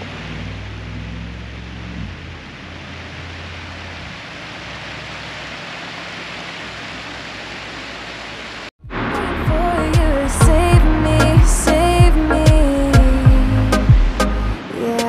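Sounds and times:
steady rushing noise: 8.6 - 15.0
low rumble: 8.8 - 14.6
music: 8.9 - 15.0.

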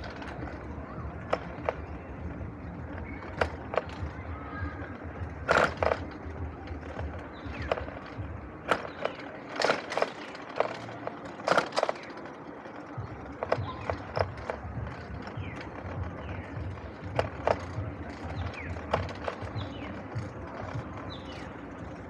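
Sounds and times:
bike frame rattling and knocking: 0.0 - 22.0
tyres rumbling on concrete: 0.0 - 22.0.

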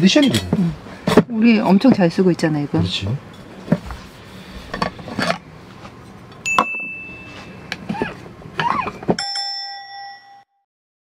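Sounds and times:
bright chime: 6.4 - 7.7
knocks and clinks of vacuum bottle: 6.5 - 7.0.

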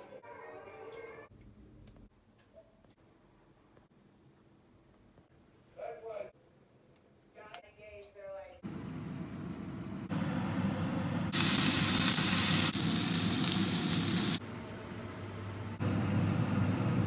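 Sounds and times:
steak sizzling in skillet: 11.3 - 14.4.

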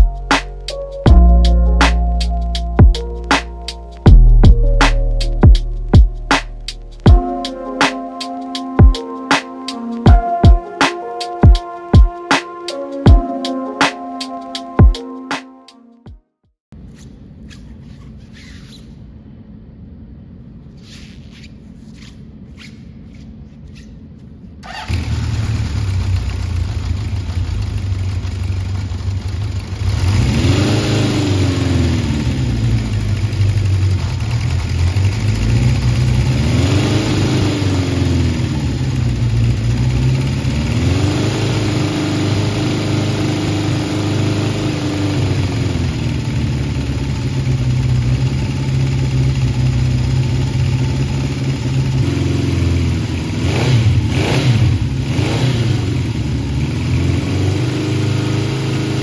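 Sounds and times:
motorcycle engine idling and revving: 0.0 - 9.1, 24.6 - 59.0.

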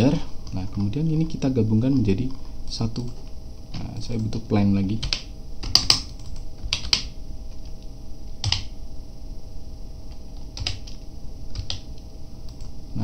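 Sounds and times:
low room hum: 0.0 - 13.0
keyboard keys clicking: 5.0 - 7.8, 10.1 - 11.9.

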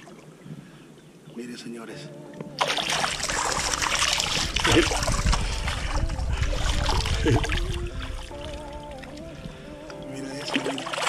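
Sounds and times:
creek water rushing: 0.0 - 0.9, 2.3 - 11.0
low rumble: 3.2 - 9.0.

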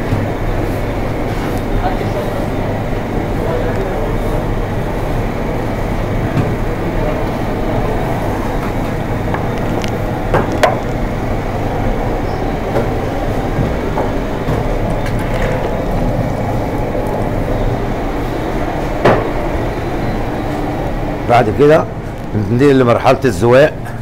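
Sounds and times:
workshop machine rumble: 0.0 - 24.0.

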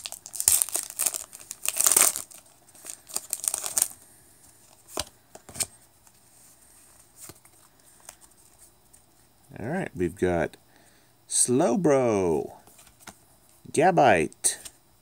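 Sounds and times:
foil card pack tearing: 0.0 - 4.0.

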